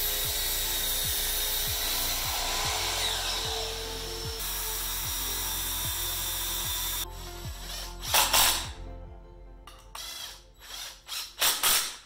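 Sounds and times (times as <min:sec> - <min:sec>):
miter saw cutting wood: 0:00.0 - 0:07.1.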